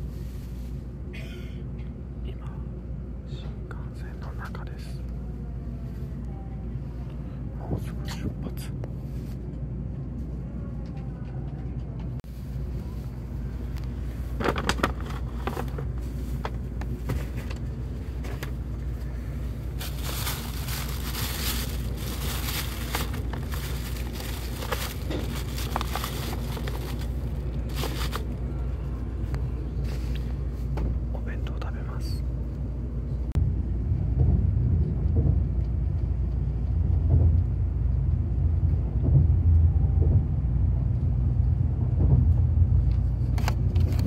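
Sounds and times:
train carriage low hum: 0:00.0 - 0:44.0
plastic bag rustling: 0:18.2 - 0:28.4.

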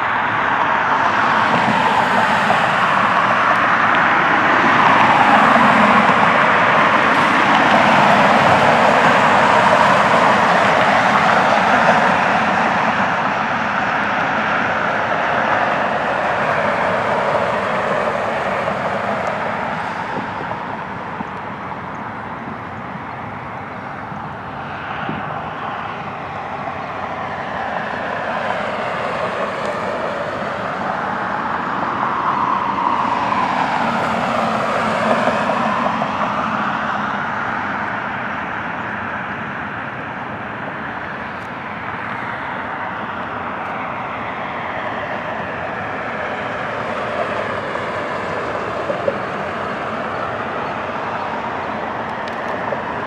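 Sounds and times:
jet aircraft passing: 0:01.0 - 0:37.8.

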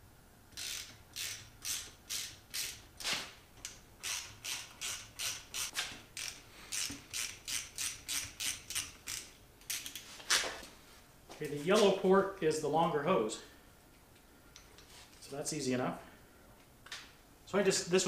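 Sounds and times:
ratchet wrench clicking: 0:00.5 - 0:02.9, 0:03.6 - 0:10.0.

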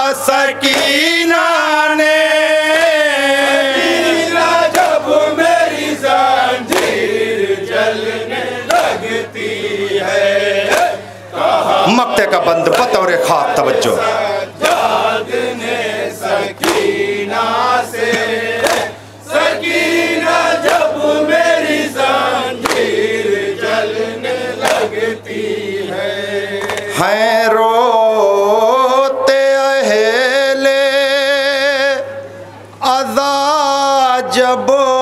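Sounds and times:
man singing through a microphone: 0:00.0 - 0:05.0, 0:25.8 - 0:35.0
men chanting in chorus: 0:00.0 - 0:35.0
chest-beating slaps: 0:06.7 - 0:07.0, 0:10.6 - 0:11.0, 0:12.6 - 0:13.0, 0:16.6 - 0:16.9, 0:18.1 - 0:18.9, 0:22.6 - 0:22.9, 0:24.6 - 0:24.9.

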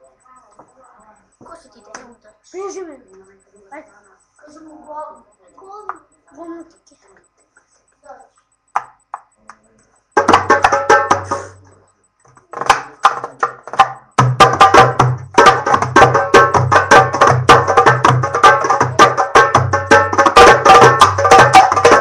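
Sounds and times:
fast hand drum rhythm: 0:10.2 - 0:11.6, 0:12.5 - 0:22.0.

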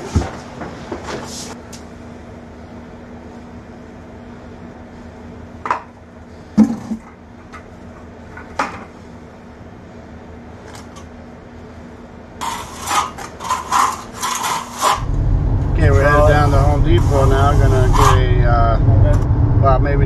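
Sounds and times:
low hum: 0:14.9 - 0:20.0.

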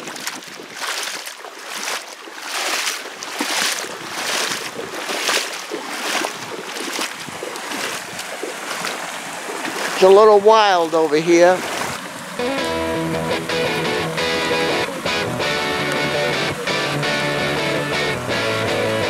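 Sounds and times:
wind on microphone: 0:00.0 - 0:01.2, 0:03.6 - 0:10.0, 0:11.6 - 0:16.7
water sloshing and splashing: 0:00.0 - 0:18.4.

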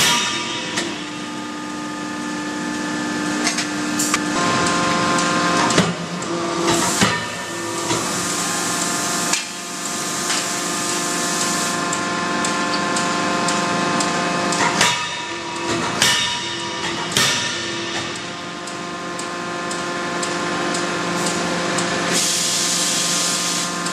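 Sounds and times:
sharp metal clanks: 0:00.0 - 0:01.6, 0:14.6 - 0:18.4
machine hum with hissing: 0:00.0 - 0:23.9.

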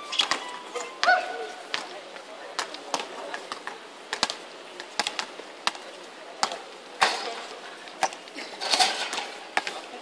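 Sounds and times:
noise from play: 0:00.0 - 0:10.0.

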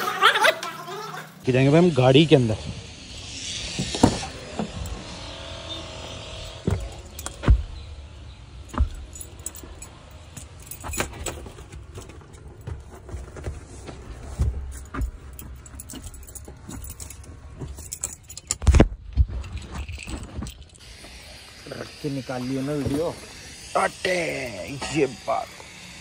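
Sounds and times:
small metallic jingles: 0:03.2 - 0:20.9
dull thumps: 0:06.5 - 0:08.0.

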